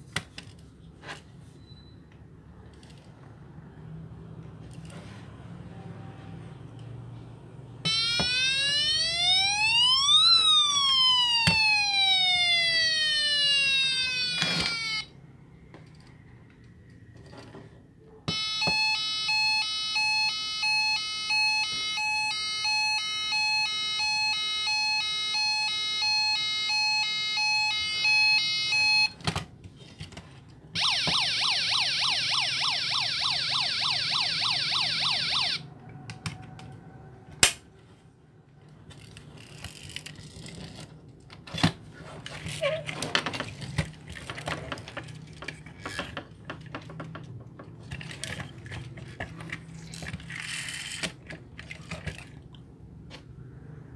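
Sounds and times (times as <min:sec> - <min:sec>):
toy electronic siren: 0:07.8 - 0:15.2, 0:18.3 - 0:29.2, 0:30.8 - 0:37.2.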